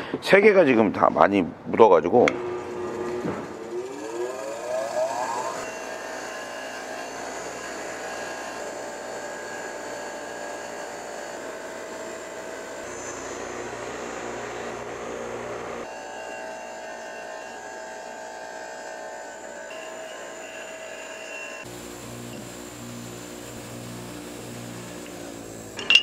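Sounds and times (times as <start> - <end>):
bench grinder motor whine: 2.3 - 26.0
metal tip brushed against grinding wheel: 15.9 - 21.7.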